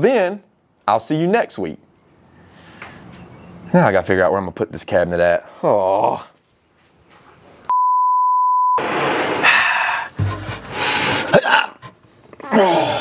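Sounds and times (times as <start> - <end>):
man's strained voice: 5.4 - 6.4, 12.4 - 13.0
censor bleep: 7.7 - 8.8.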